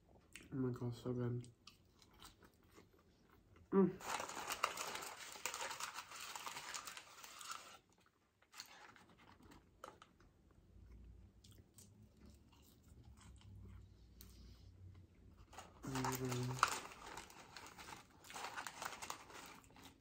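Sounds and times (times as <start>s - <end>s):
chewing and crunching food: 1.2s - 20.0s
paper packaging handling: 4.0s - 7.9s, 15.5s - 20.0s.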